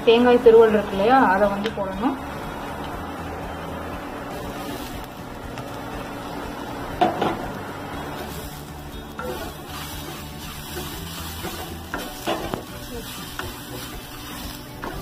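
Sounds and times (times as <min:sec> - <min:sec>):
food sizzling in a pan: 0:00.0 - 0:15.0
wooden spatula stirring: 0:08.2 - 0:15.0
spatula clattering against pan: 0:09.2 - 0:12.7.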